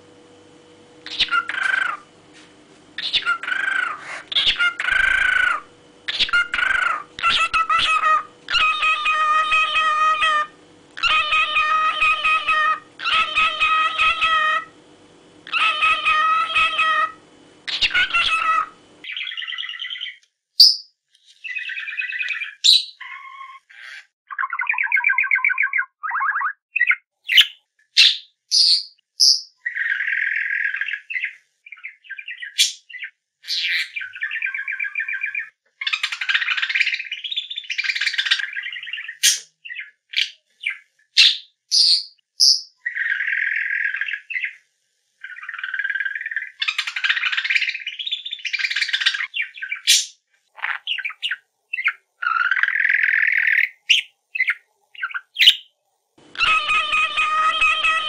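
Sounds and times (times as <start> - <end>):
parrot squawks and chirps: 1.0 - 2.1, 3.0 - 14.8, 15.4 - 44.6, 45.2 - 55.7, 56.3 - 58.0.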